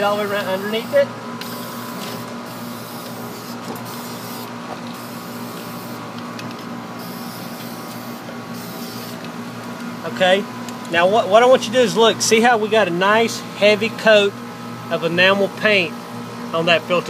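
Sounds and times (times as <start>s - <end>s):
steady low hum: 0.0s - 17.0s
spray paint can hissing: 1.4s - 6.0s, 7.0s - 9.2s.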